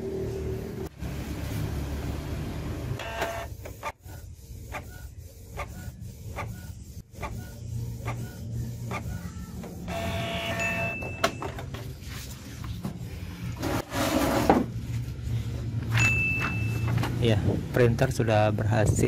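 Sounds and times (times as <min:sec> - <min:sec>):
printer motors humming: 0:03.0 - 0:10.9.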